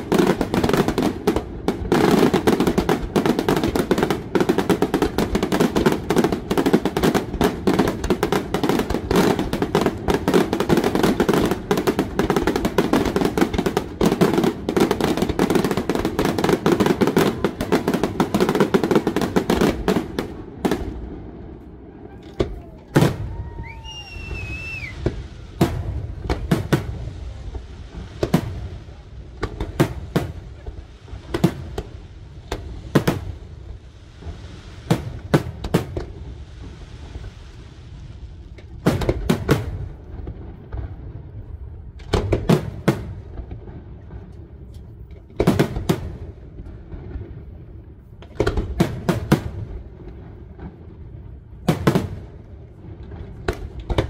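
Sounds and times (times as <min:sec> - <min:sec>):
falling firework whistle: 0:21.7 - 0:25.6.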